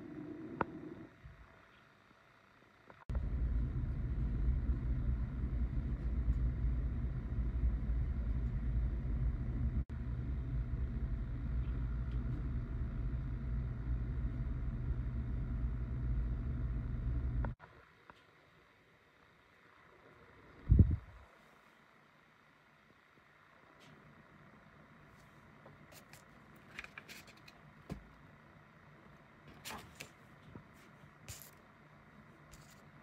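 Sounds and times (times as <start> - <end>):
steady low rumble: 3.1 - 17.6, 20.4 - 21.3.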